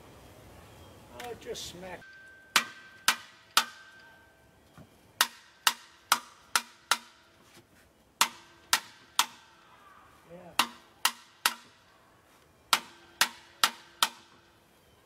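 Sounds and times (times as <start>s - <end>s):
mallet striking metal housing: 2.0s - 4.2s.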